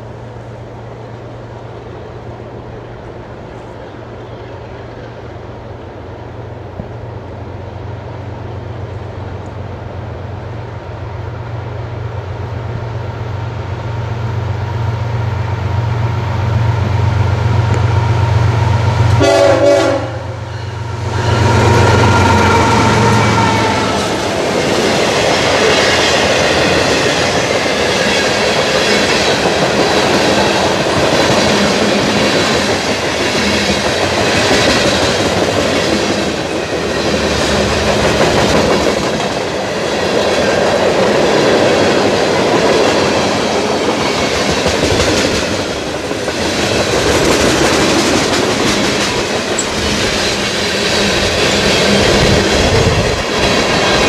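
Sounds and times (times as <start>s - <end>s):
diesel locomotive engine hum: 0.0s - 54.0s
train horn: 18.6s - 24.2s.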